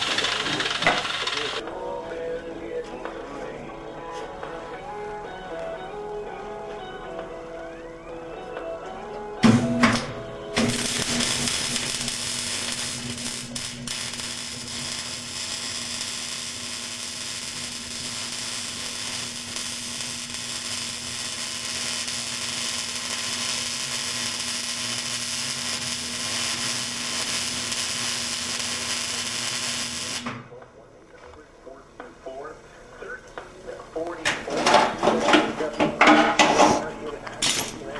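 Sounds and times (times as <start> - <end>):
arc welder crackling hiss: 0.0 - 1.6, 10.6 - 30.4.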